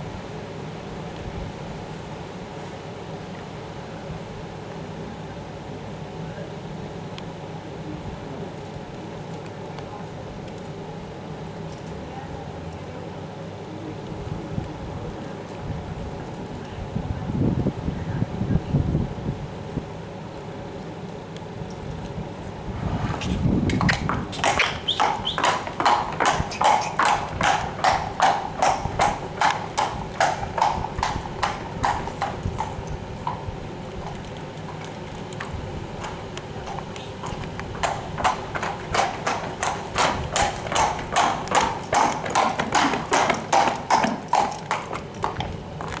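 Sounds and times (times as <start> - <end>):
horse hooves on brick paving: 8.3 - 10.8, 19.5 - 46.0.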